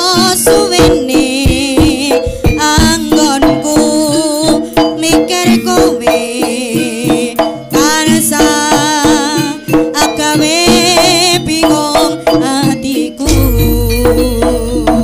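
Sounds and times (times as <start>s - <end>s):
drum strokes: 0.0s - 15.0s
high wavering melody: 13.2s - 15.0s
ringing gong tones: 13.3s - 15.0s.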